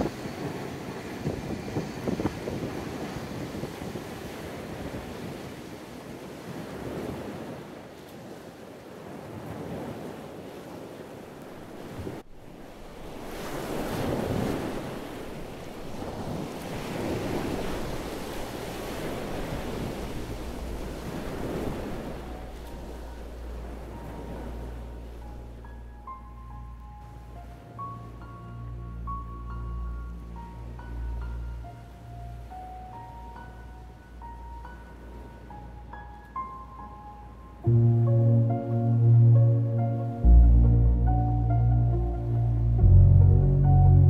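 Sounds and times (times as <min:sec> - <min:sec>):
surf breaking on beach: 0:00.0 - 0:25.8
wind buffeting microphone: 0:00.0 - 0:44.0.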